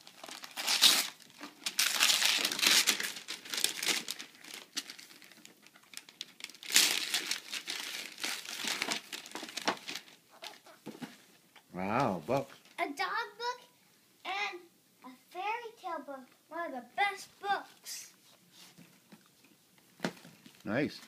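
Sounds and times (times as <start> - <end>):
wrapping paper tearing and rustling: 0.0 - 10.7.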